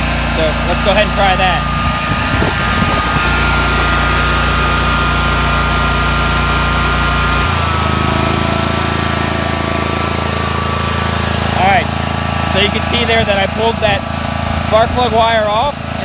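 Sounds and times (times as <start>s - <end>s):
mower engine running: 0.0s - 16.0s.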